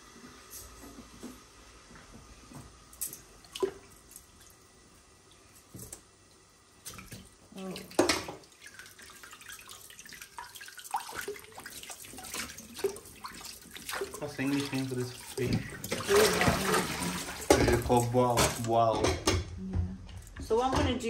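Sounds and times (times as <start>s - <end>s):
hands splashing water: 6.8s - 18.1s
tap running into bowl of water: 10.4s - 18.8s.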